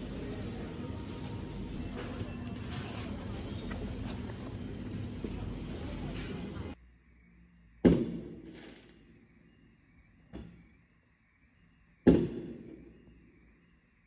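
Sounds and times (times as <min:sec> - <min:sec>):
fireworks banging: 0:07.8 - 0:09.0.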